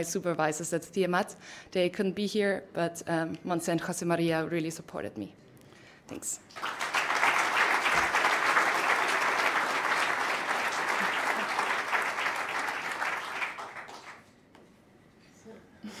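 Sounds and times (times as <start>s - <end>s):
audience applauding: 6.5s - 14.3s.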